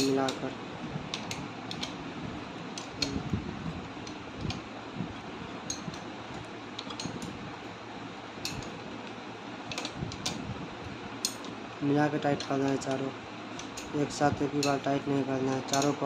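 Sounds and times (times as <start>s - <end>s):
steady background hiss: 0.0s - 16.0s
spanner metallic clicks: 1.1s - 2.0s, 2.7s - 3.2s, 5.6s - 7.4s, 8.4s - 10.4s, 11.2s - 11.6s, 12.3s - 16.0s.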